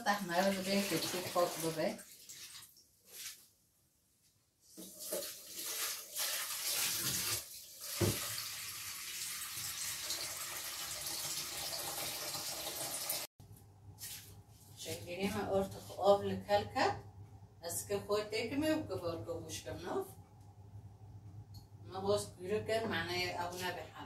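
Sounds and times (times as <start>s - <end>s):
knock: 8.0s - 8.2s
tap running into steel sink: 8.0s - 8.3s.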